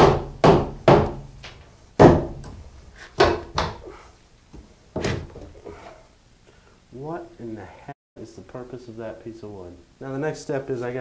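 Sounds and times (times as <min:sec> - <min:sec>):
hammer striking wooden block: 0:00.0 - 0:01.3, 0:02.0 - 0:02.6, 0:03.2 - 0:03.9.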